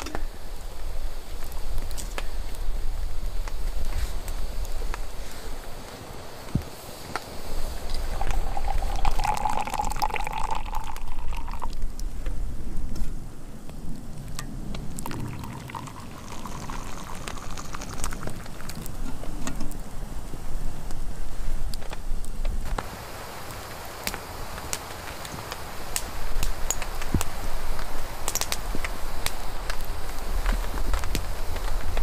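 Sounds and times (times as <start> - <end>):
liquid pouring into mug: 8.0 - 11.8, 14.9 - 19.2.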